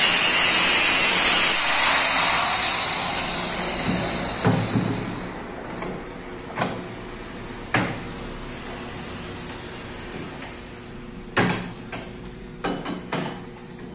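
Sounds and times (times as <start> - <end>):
angle grinder grinding metal: 0.0 - 5.4.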